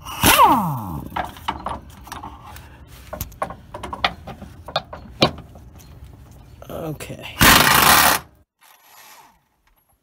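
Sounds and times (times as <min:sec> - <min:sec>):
power tool whirring: 0:07.4 - 0:09.2.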